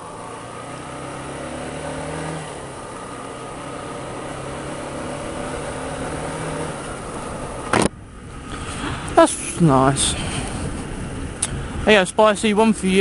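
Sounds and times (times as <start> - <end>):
motorcycle engine cruising: 0.0 - 13.0
wind noise on microphone: 7.7 - 13.0.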